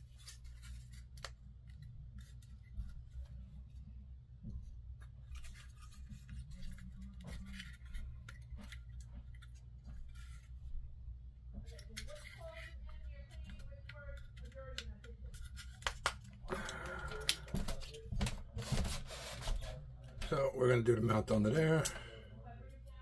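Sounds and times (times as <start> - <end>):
small parts clicking and scratching: 5.1 - 10.7, 11.6 - 16.3.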